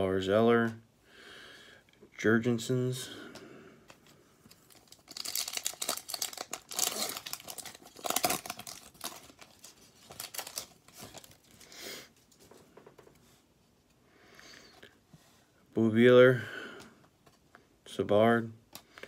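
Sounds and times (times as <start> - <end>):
foil pack crinkling and tearing: 4.5 - 11.7.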